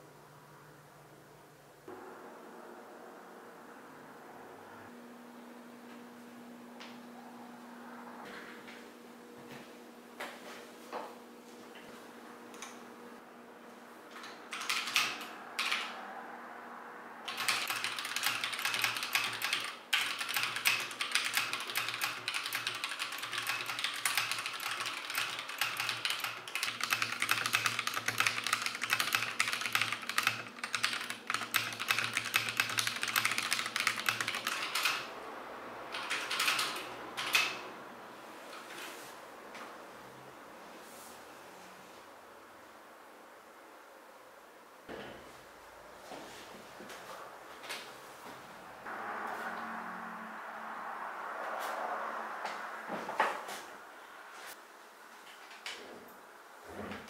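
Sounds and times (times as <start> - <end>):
mechanical keyboard typing: 14.2 - 16.0, 17.3 - 35.1, 35.9 - 37.6.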